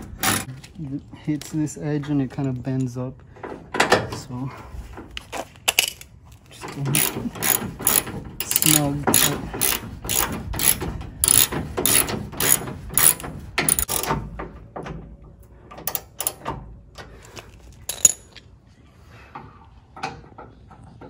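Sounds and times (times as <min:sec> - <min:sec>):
ratchet wrench clicking: 0:07.0 - 0:14.1.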